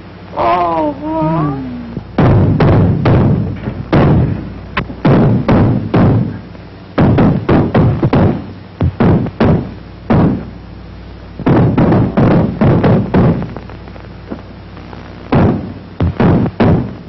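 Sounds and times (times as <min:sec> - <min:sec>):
steady low hum: 0:00.0 - 0:17.0
loud knocks and thuds: 0:02.0 - 0:06.4, 0:07.0 - 0:10.5, 0:11.4 - 0:13.5, 0:15.3 - 0:17.0.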